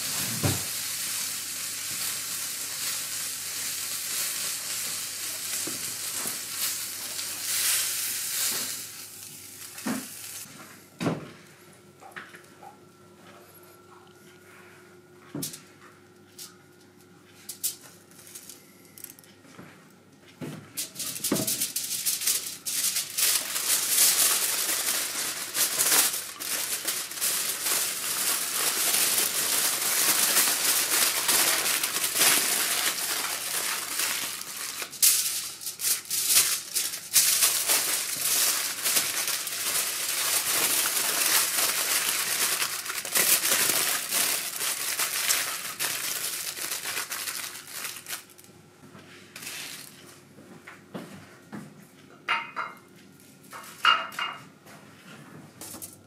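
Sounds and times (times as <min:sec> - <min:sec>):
aluminium foil crinkling: 0:00.0 - 0:10.5, 0:20.8 - 0:48.5, 0:49.4 - 0:50.0.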